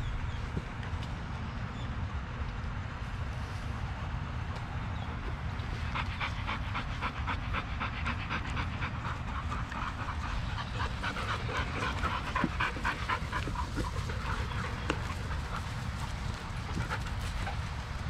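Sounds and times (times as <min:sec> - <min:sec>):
dog panting hard: 0:05.6 - 0:18.0.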